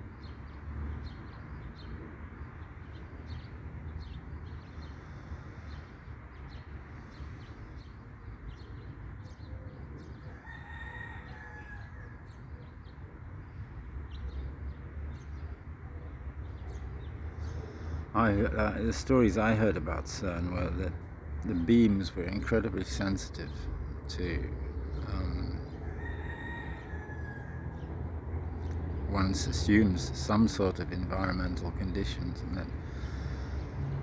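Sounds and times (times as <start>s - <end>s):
small birds chirping: 0.0s - 34.0s
long pitched bird call: 4.1s - 12.9s.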